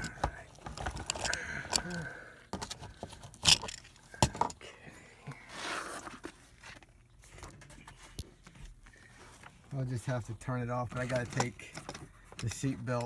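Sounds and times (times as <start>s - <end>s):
rustling scrape: 5.4s - 8.2s.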